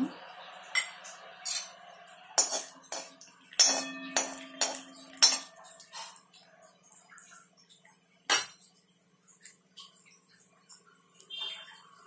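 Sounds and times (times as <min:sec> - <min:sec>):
spatula stirring and knocking pan: 0:02.4 - 0:06.4
pan ringing tone: 0:03.6 - 0:06.2.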